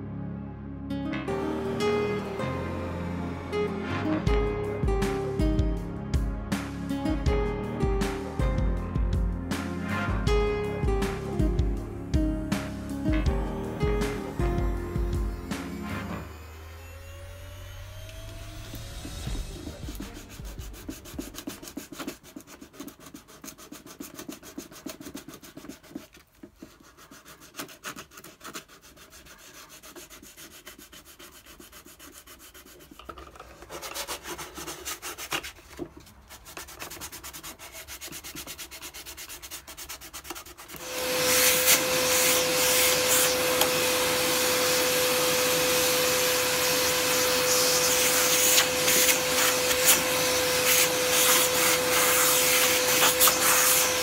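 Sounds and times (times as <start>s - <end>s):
shop vacuum running: 14.2s - 20.6s, 40.8s - 54.0s
sandpaper rubbing on wood: 19.6s - 43.4s, 47.4s - 54.0s.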